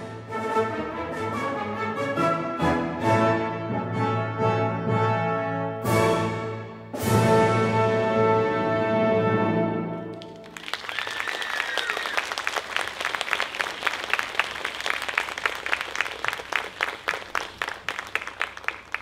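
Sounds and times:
audience applauding: 10.1s - 19.0s
high held cheer: 10.2s - 19.0s.

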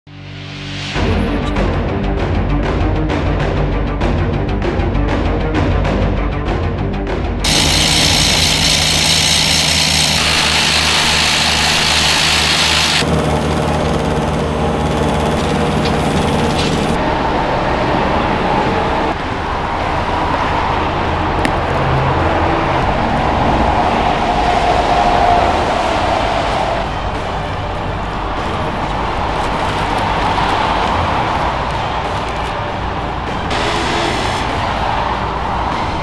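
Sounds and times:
road traffic noise: 7.3s - 36.0s.

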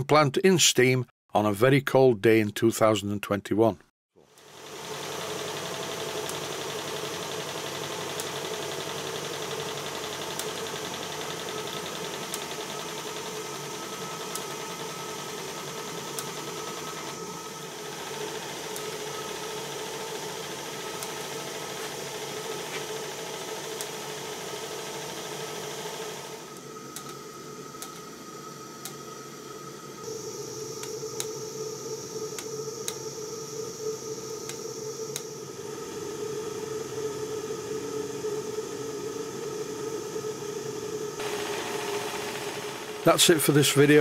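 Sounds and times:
steam engine humming: 30.0s - 44.0s
steam hissing: 30.0s - 44.0s.

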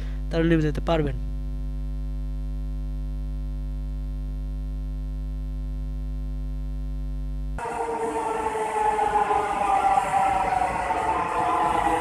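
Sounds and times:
electrical hum: 0.0s - 7.6s.

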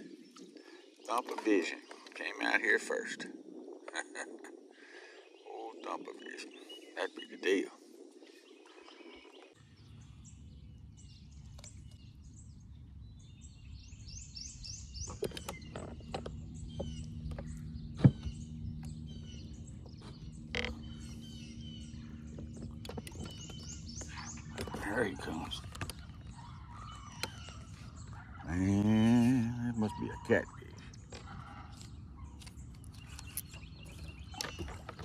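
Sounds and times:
birds chirping: 0.0s - 35.0s
low steady hum: 8.5s - 35.0s
sharp clicks and knocks: 15.0s - 19.0s, 22.3s - 24.9s.

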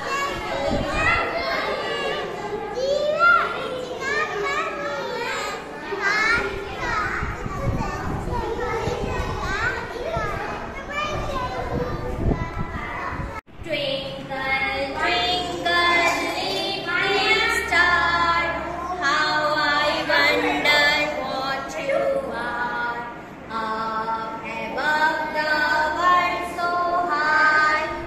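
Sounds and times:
children singing: 14.3s - 28.0s.

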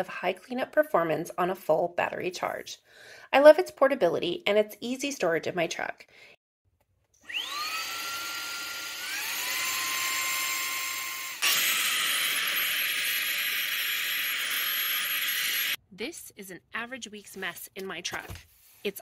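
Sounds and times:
handheld vacuum motor whine: 7.2s - 15.8s.

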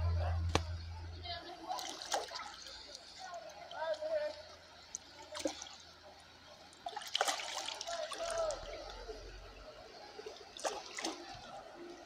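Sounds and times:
fish splashing in water: 1.6s - 3.1s, 6.8s - 8.8s, 10.2s - 11.6s.

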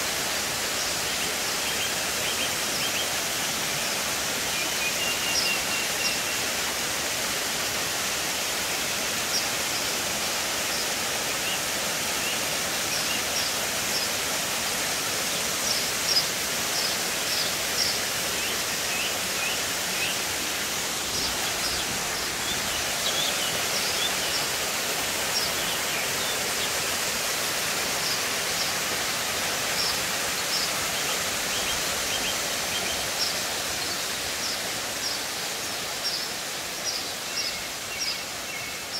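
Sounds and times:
waterfall rushing into pool: 0.0s - 38.9s.

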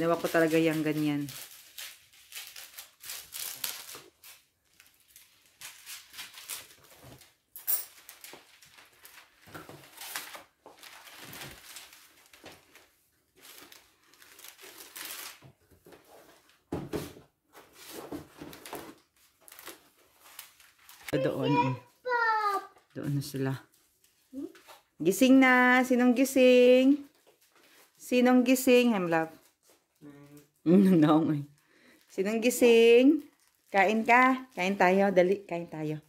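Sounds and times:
wrapping paper crinkling: 0.0s - 16.6s, 17.8s - 22.0s, 31.4s - 35.2s.

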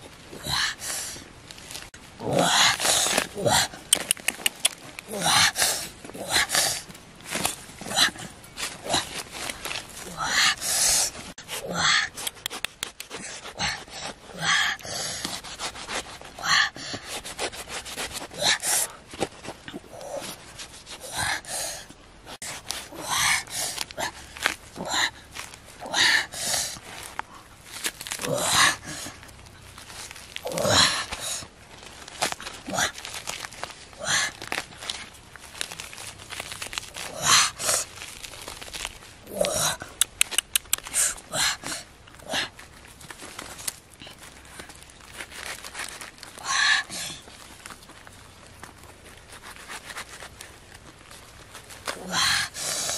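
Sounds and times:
fruit flesh tearing: 1.5s - 10.4s, 11.1s - 14.4s, 17.0s - 21.0s, 22.4s - 25.9s, 26.7s - 46.5s, 47.2s - 52.9s
chewing: 2.3s - 5.2s, 12.1s - 14.1s, 31.9s - 46.4s
knife slicing fruit flesh: 17.0s - 18.4s
sharp clicks: 40.0s - 41.0s.

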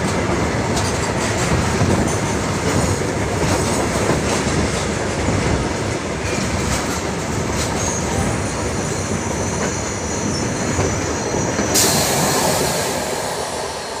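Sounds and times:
train wheels rumbling on rail: 0.0s - 14.0s
loud high hiss: 11.7s - 14.0s.

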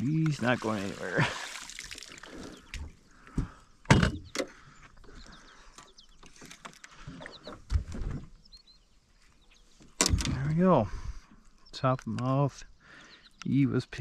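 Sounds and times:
knocks and clunks on a boat: 2.7s - 4.6s.

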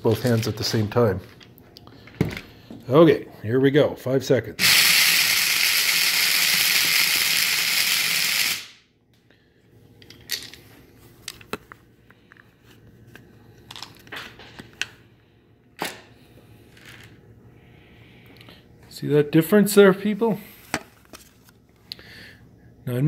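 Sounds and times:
blade coffee grinder grinding: 4.6s - 8.7s.

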